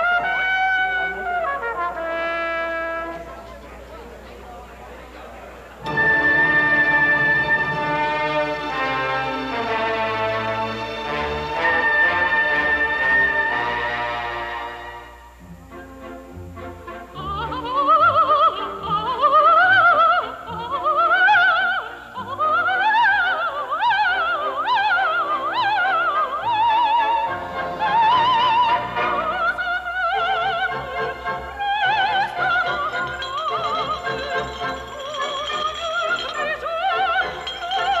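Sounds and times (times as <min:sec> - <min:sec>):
operatic singing with vibrato: 0:00.0 - 0:03.1, 0:05.8 - 0:38.0
orchestra playing: 0:05.8 - 0:21.1, 0:25.5 - 0:38.0.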